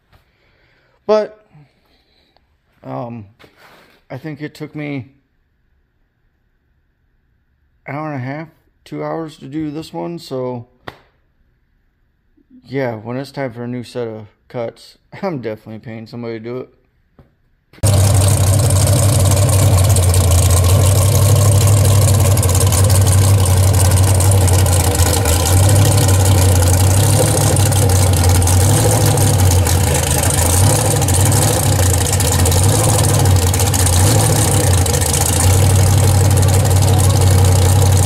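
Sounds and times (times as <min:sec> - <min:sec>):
truck engine idling loudly: 0:17.8 - 0:38.0.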